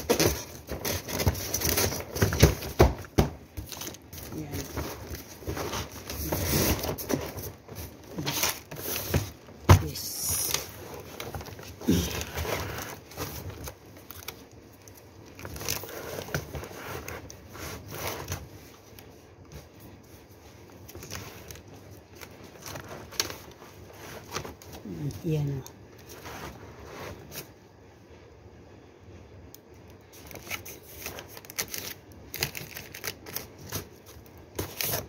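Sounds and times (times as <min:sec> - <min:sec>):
cardboard and plastic crinkling: 0:00.0 - 0:27.8, 0:29.8 - 0:35.0.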